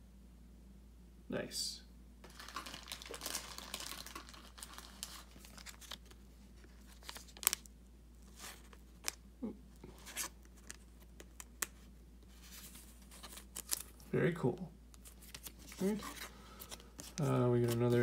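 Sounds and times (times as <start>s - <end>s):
plastic sleeve crinkling: 2.2s - 9.2s, 9.8s - 14.1s, 15.0s - 18.0s.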